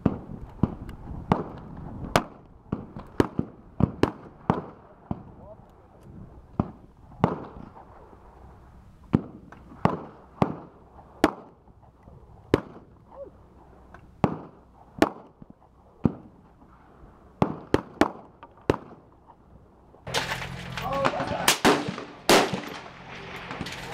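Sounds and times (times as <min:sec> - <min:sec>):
gunshots with echo: 0:21.0 - 0:23.6.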